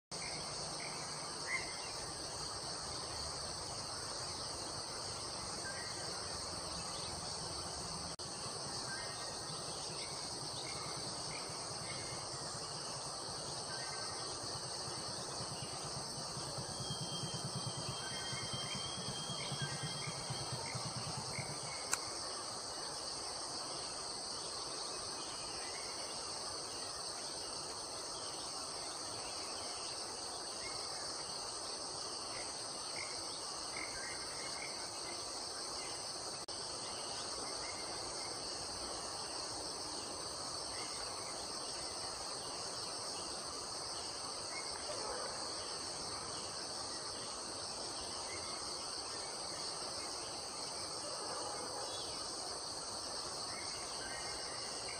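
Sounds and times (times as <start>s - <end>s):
insects droning: 0.1s - 54.9s.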